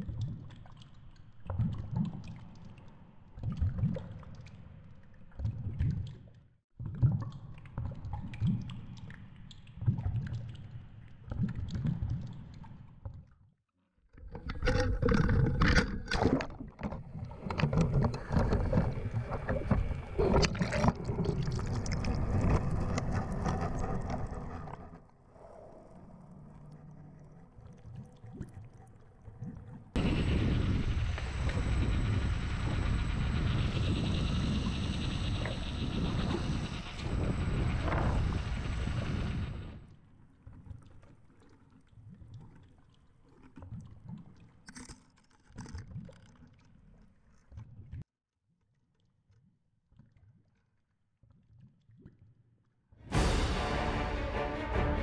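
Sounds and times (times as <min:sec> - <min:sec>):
water rushing underwater: 0:14.3 - 0:39.8
sea water splashing: 0:14.4 - 0:24.9
wind: 0:14.6 - 0:41.3.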